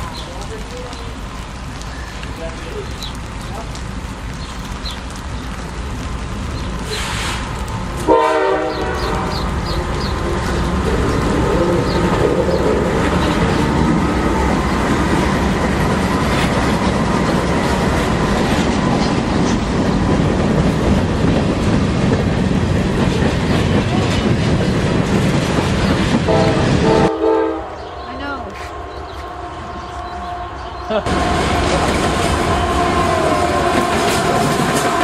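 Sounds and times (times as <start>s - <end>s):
diesel locomotive passing: 0.0s - 35.0s
train wheels clattering on rails: 6.8s - 27.1s, 31.1s - 35.0s
train horn note: 8.0s - 9.4s, 26.3s - 30.7s, 32.2s - 35.0s.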